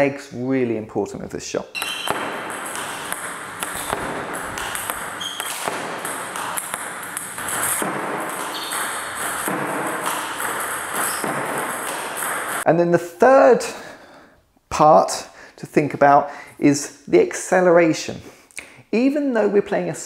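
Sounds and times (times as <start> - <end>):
table tennis ball clicks: 1.8 - 12.6.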